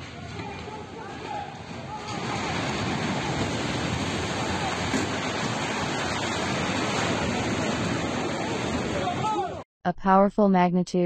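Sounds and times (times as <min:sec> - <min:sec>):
building collapsing roar: 0:00.0 - 0:09.6
people shouting faintly: 0:08.4 - 0:09.6.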